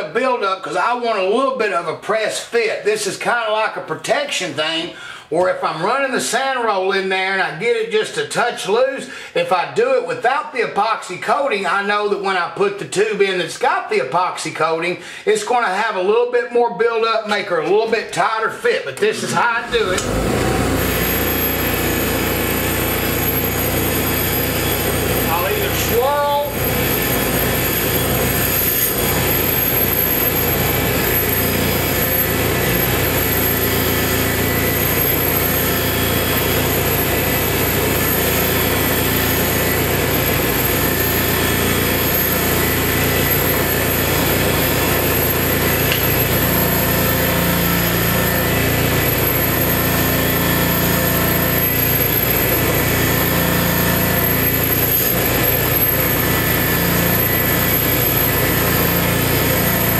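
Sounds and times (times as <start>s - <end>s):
belt-driven arbor running: 22.4s - 39.5s.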